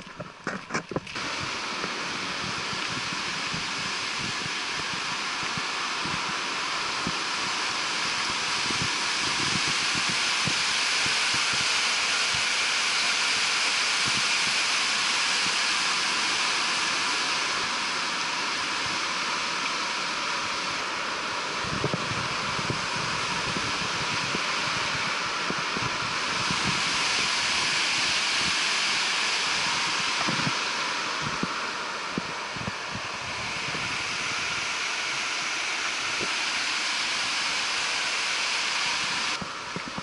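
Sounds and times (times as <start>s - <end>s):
river rushing over boulders: 0.0s - 40.0s.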